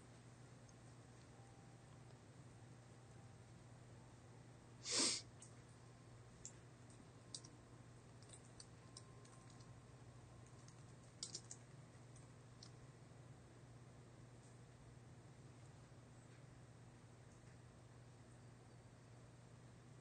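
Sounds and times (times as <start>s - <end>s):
typing on computer keyboard: 8.2s - 9.7s, 10.4s - 12.8s.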